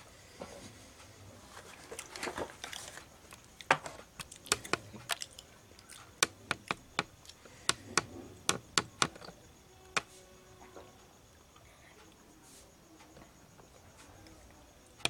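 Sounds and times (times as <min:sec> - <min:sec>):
sharp clicks: 0:04.1 - 0:09.3.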